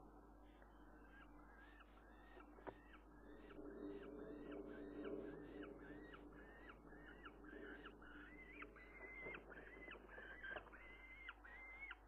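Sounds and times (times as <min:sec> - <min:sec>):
falcon calling: 0:03.4 - 0:12.0.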